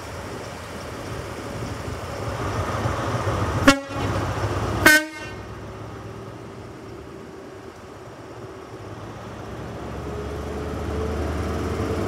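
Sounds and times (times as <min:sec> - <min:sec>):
low diesel engine rumble: 0:00.0 - 0:12.0
train horn blasts: 0:03.6 - 0:04.2, 0:04.8 - 0:05.5.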